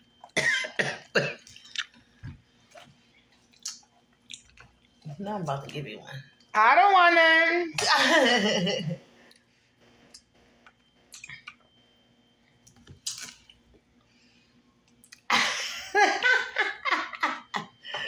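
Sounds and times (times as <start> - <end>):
quiet chewing: 1.4 - 5.1, 9.2 - 11.8
woman laughing loudly: 7.8 - 9.0, 15.3 - 18.0.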